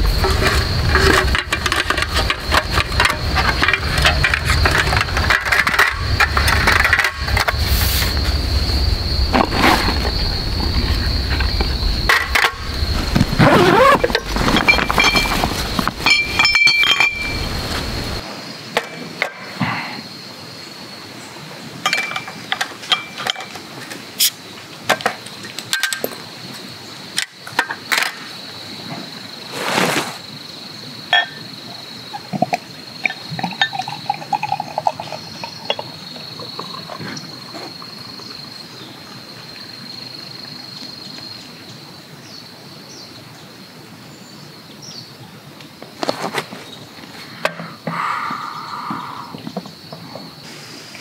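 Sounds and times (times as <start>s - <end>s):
backpack rustling: 12.6s - 16.4s, 29.5s - 30.3s
glass clinking: 14.6s - 15.4s, 16.0s - 17.5s, 21.8s - 23.5s, 31.1s - 31.4s, 33.0s - 37.5s
beer pouring into glass: 33.4s - 37.9s.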